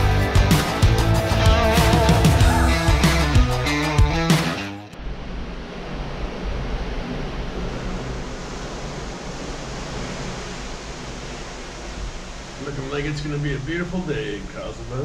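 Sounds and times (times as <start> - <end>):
wind and sea rushing: 5.0 - 15.0.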